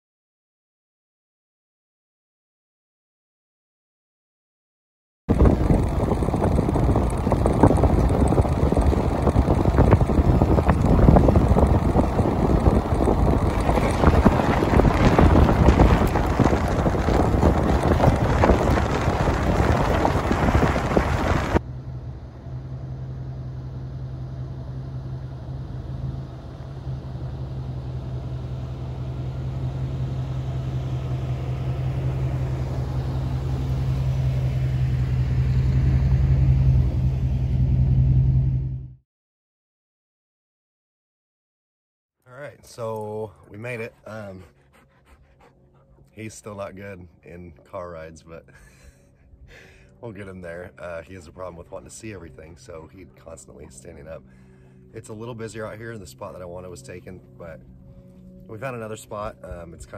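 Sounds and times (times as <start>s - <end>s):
wind buffeting: 5.3s - 21.6s
truck engine hum: 5.3s - 39.0s, 42.4s - 59.9s
tyres on gravel: 5.4s - 21.6s.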